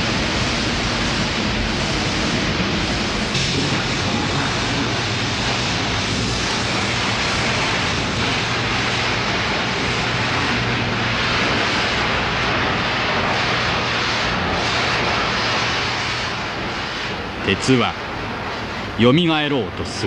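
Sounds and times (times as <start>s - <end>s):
roar of furnace flames: 0.0s - 19.0s.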